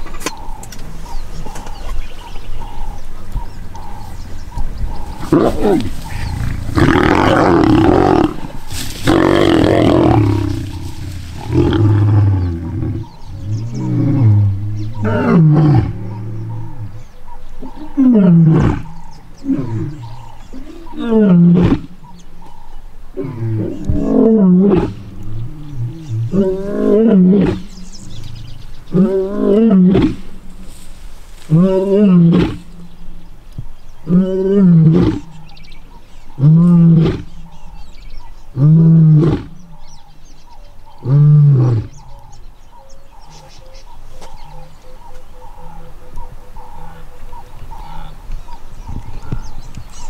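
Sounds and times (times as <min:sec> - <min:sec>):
lion roaring: 0:05.0 - 0:17.0, 0:17.6 - 0:21.9, 0:23.2 - 0:30.4, 0:31.5 - 0:32.7, 0:34.0 - 0:35.4.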